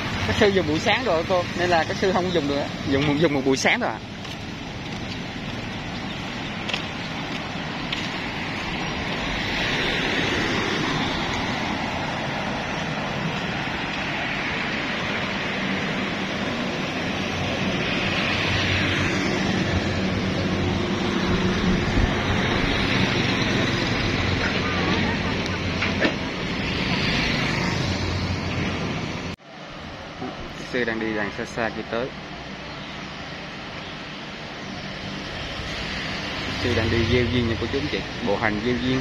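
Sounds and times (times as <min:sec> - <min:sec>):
vehicles passing: 0:00.0 - 0:39.0.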